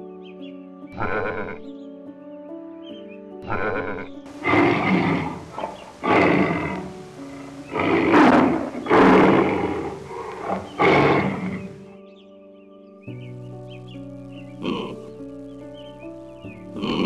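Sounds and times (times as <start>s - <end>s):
background music: 0.0s - 17.0s
sheep bleating: 1.0s - 1.6s, 3.4s - 11.8s
tiger growling calls: 3.5s - 11.9s, 14.5s - 15.2s, 16.5s - 17.0s.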